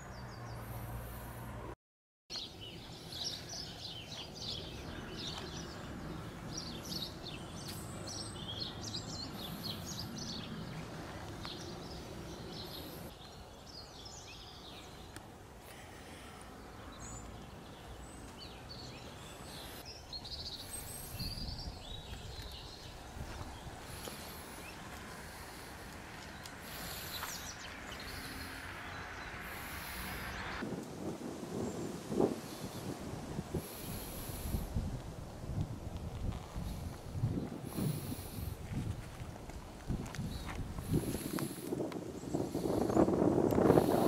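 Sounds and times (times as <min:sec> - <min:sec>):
outdoor background noise: 0:00.0 - 0:44.0
songbirds chirping and singing: 0:02.3 - 0:30.6.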